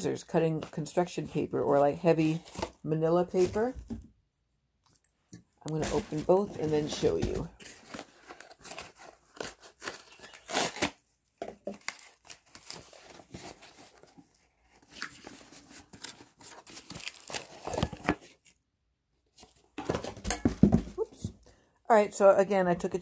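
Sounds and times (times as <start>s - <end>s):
packaging tearing and crinkling: 7.6s - 18.6s.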